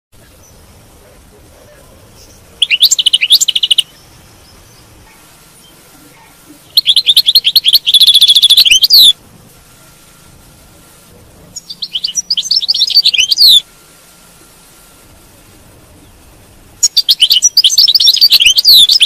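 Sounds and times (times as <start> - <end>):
goldfinch twittering and trilling: 2.2 - 4.9, 6.7 - 9.2, 11.6 - 13.6, 16.8 - 19.0.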